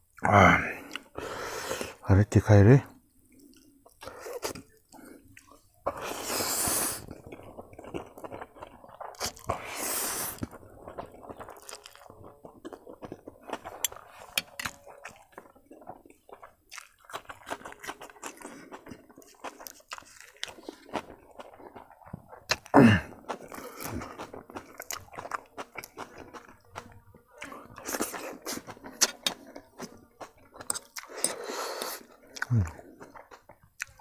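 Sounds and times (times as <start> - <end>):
wet crunchy chewing: 2.9 - 34.0
person slurping noodles: 5.9 - 7.5, 9.1 - 12.1, 30.6 - 33.2.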